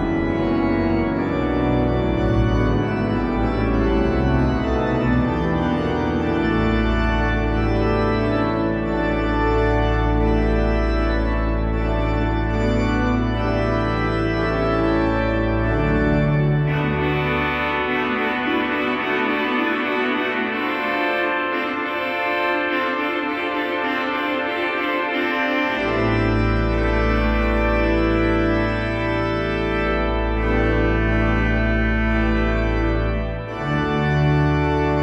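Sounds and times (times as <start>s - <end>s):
deep organ pedal bass note: 0.0s - 35.0s
pipe organ chords: 0.0s - 35.0s.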